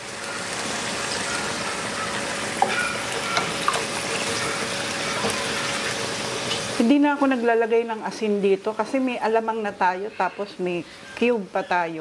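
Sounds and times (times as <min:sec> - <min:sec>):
splashing and hissing pan: 0:00.0 - 0:06.9.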